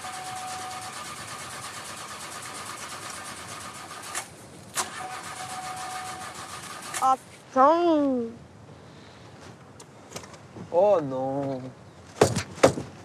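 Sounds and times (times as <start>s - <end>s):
engine cranking with starter motor: 0.0s - 7.2s.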